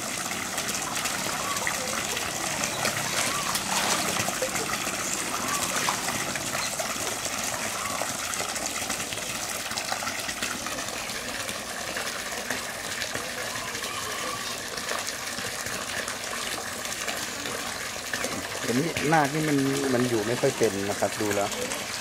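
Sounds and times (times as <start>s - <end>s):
water gushing into pool: 0.0s - 22.0s.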